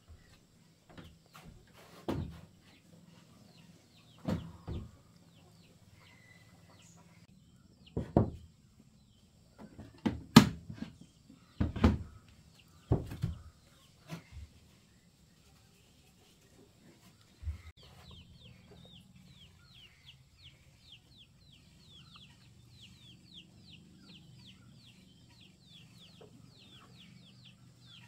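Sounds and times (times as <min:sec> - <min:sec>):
birds chirping: 0:00.0 - 0:10.1, 0:10.7 - 0:28.0.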